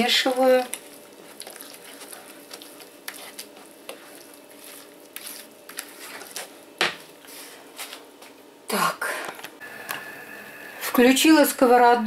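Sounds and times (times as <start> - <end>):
batter squelching: 0.0 - 8.0.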